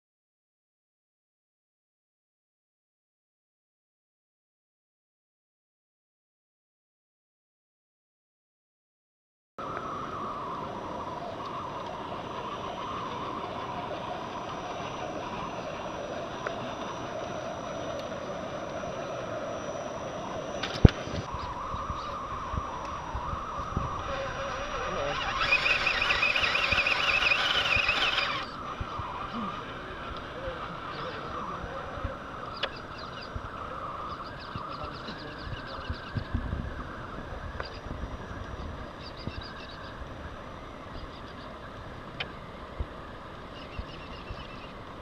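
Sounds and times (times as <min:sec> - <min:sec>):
electric motor and gears whining: 0:09.6 - 0:40.3
outdoor background noise: 0:09.6 - 0:45.0
small electric drivetrain whirring: 0:09.6 - 0:45.0.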